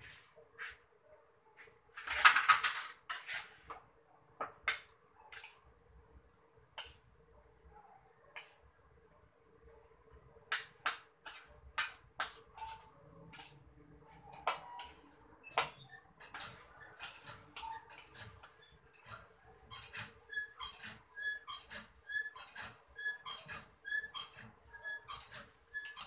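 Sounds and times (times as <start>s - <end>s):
animal squeaking: 19.4s - 26.0s.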